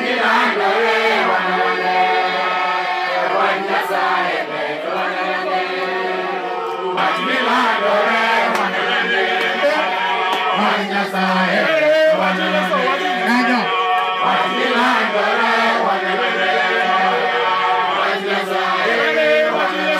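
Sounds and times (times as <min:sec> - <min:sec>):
congregation singing a hymn: 0:00.0 - 0:19.9.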